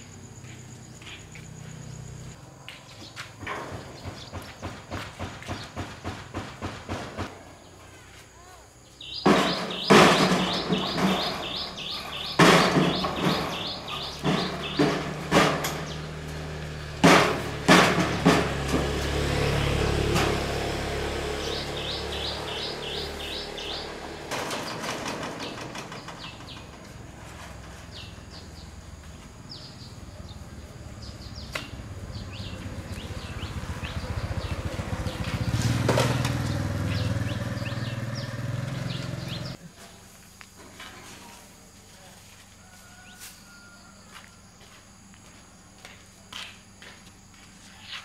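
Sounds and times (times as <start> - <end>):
small birds chirping: 0.0 - 6.2, 7.4 - 17.0, 21.0 - 39.6
sharp knocks: 3.4 - 7.4, 9.1 - 16.2, 16.8 - 20.7.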